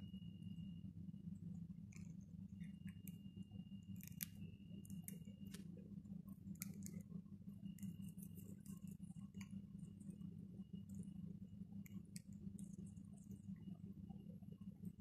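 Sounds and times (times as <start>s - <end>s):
parakeets crunching dry food: 3.9s - 5.6s, 6.4s - 7.1s.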